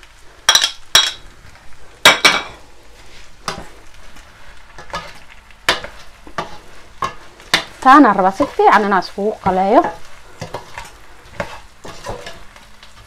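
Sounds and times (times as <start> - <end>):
rice sizzling: 0.0 - 13.0
metal spoon scraping a pot: 9.8 - 12.6.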